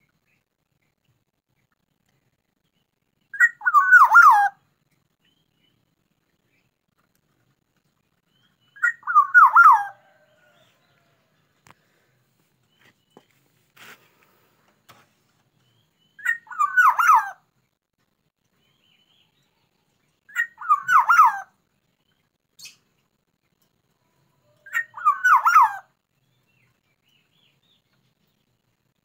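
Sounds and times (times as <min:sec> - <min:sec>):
bird whistling song: 0:03.3 - 0:04.6, 0:08.3 - 0:10.3, 0:15.8 - 0:17.4, 0:20.3 - 0:21.5, 0:24.6 - 0:25.9.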